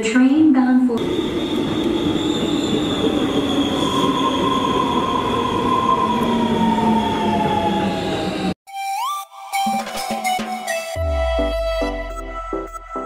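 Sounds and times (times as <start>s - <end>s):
wheels rumbling on rail: 1.0s - 8.5s.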